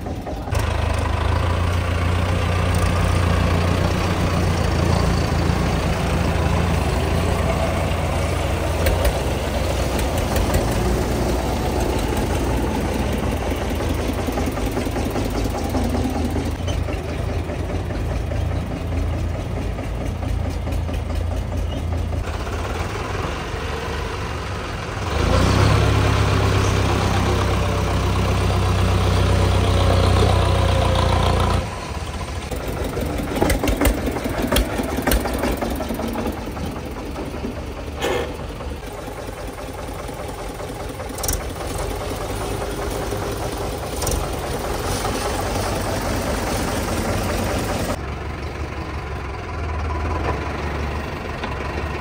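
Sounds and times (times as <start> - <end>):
tractor diesel engines running: 0.0 - 52.0
knocks and clatter: 8.6 - 22.4, 32.5 - 45.8.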